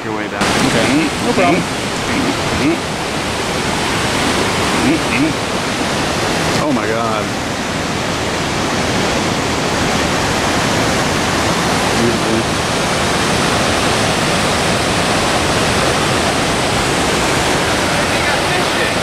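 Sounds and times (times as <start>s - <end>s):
waterfall rushing: 0.1s - 19.0s.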